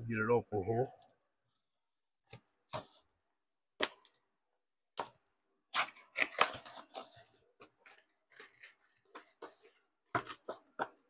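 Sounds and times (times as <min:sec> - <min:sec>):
cardboard tearing and crackling: 0:05.7 - 0:07.2.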